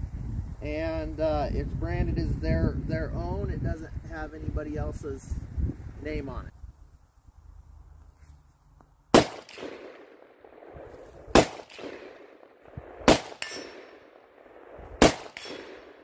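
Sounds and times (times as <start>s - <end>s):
pistol gunshots: 9.1s - 16.0s.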